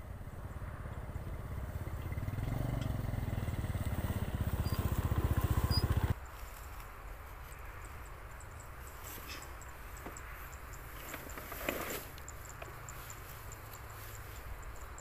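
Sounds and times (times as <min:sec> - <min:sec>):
motor scooter engine running: 0:00.0 - 0:06.2
outdoor background: 0:00.0 - 0:15.0.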